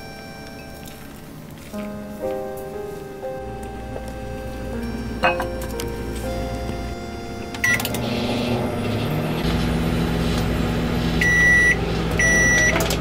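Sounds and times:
long microwave beeps: 0.0 - 1.0, 4.2 - 9.2, 11.2 - 13.0
microwave oven humming: 0.0 - 1.7, 3.4 - 13.0
microwave button beep: 4.8 - 8.6, 11.2 - 13.0.

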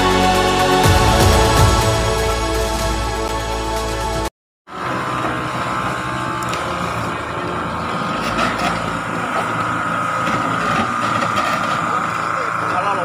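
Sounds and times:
music: 0.0 - 4.3.

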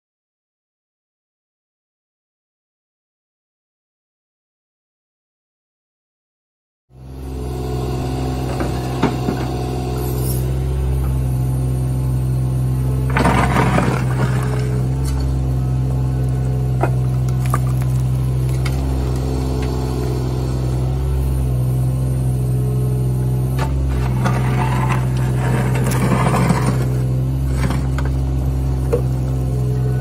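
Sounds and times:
excavator diesel engine running: 7.0 - 30.0
steel bucket scraping dirt: 13.0 - 15.4, 23.5 - 29.1.

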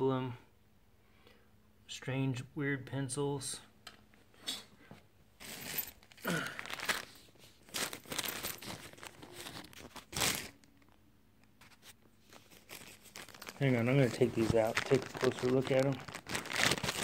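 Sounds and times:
plastic bag crinkling: 5.4 - 11.0, 11.6 - 17.0.

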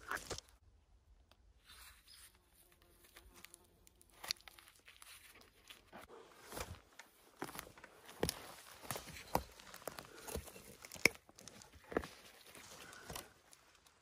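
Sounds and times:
crunching in dry leaf litter: 1.6 - 6.0, 7.4 - 14.0.

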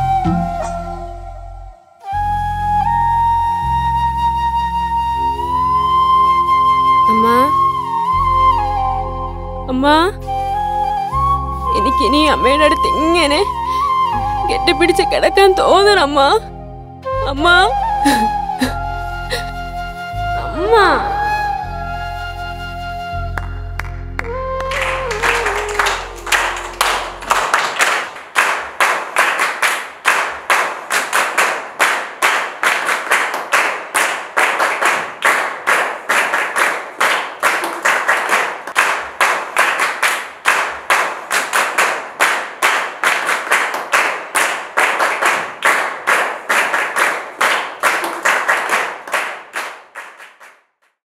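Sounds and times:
background music: 0.0 - 28.3
people clapping in time: 23.2 - 51.0.

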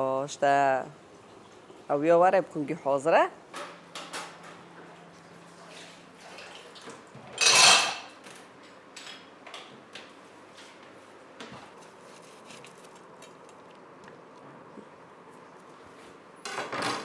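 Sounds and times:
kitchenware clashing: 7.3 - 9.3.

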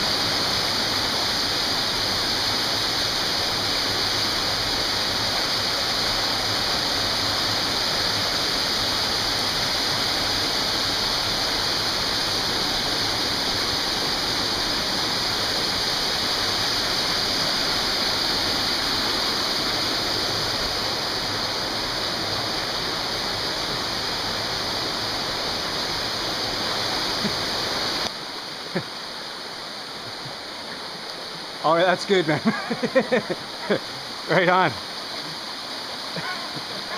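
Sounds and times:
stream water rushing over boulders: 0.0 - 36.9.

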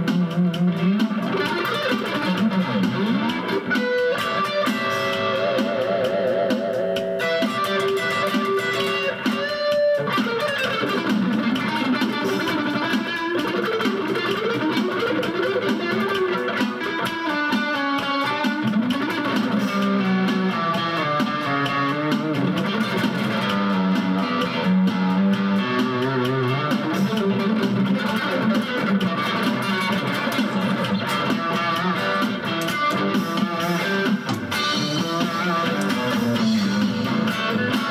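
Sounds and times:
electric guitar lead melody: 0.0 - 37.9.

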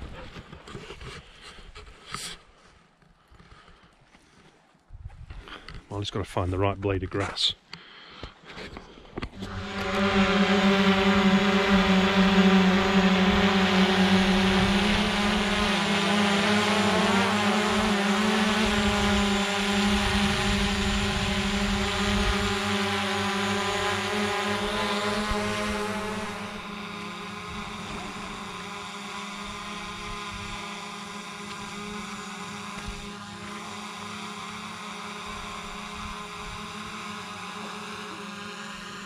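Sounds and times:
drone propellers buzzing: 9.1 - 39.0.

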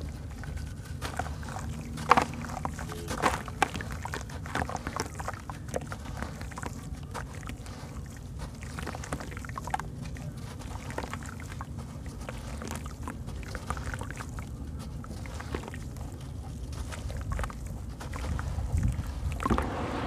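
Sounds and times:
steady low rumble: 9.6 - 20.0.

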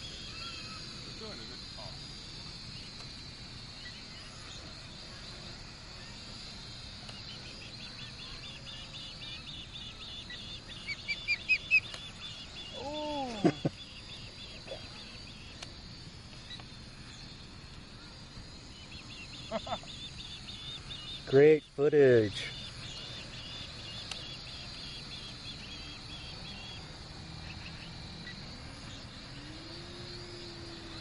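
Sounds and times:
insects chirping: 0.0 - 31.0
bird sharp high chirps: 7.1 - 15.8, 18.7 - 29.0.

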